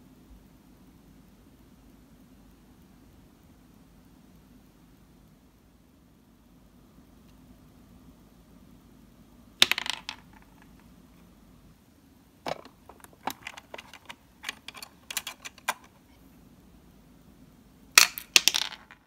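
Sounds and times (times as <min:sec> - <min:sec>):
plastic toy pieces clattering: 0:09.6 - 0:10.8, 0:12.5 - 0:16.0, 0:18.0 - 0:19.0.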